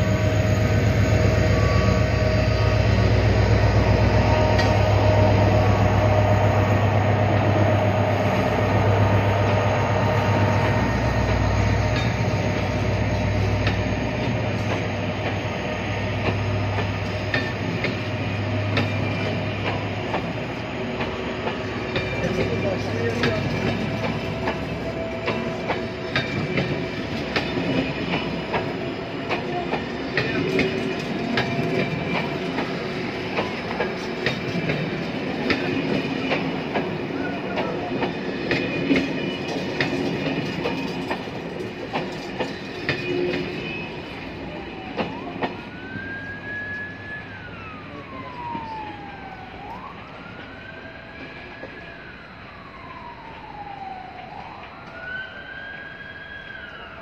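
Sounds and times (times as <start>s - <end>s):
train wheels clicking over rail joints: 0.0s - 6.5s, 8.2s - 45.8s
distant wailing siren: 0.0s - 57.0s
train wheel squeal: 0.0s - 57.0s.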